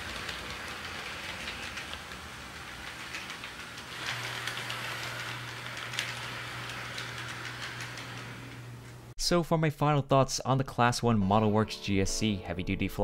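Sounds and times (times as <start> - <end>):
model train rattling on track: 0.0 - 8.9
wheel clicks over rail joints: 0.0 - 9.1.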